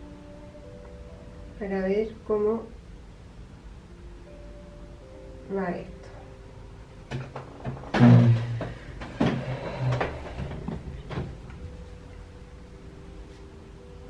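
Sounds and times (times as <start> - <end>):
chair scraping on floor: 7.1 - 11.5.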